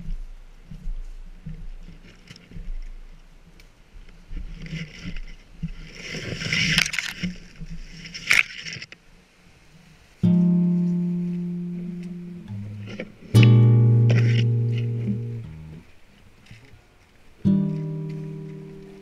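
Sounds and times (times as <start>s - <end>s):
rustling through undergrowth: 0.0s - 19.0s
acoustic guitar chord ringing: 10.2s - 15.8s, 17.4s - 19.0s
sharp crack: 11.7s - 15.8s.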